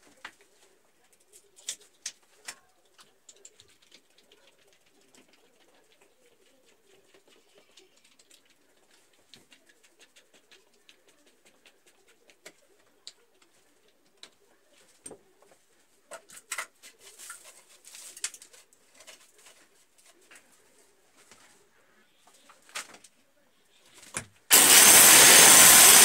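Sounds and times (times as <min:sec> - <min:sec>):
louder clicks and rattles: 0:24.5 - 0:26.0
screwdriver clicking and scraping: 0:24.5 - 0:26.0.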